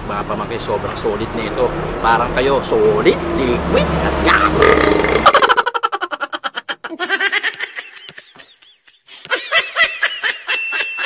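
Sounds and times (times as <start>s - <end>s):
high-pitched snickering laughter: 5.0s - 11.0s.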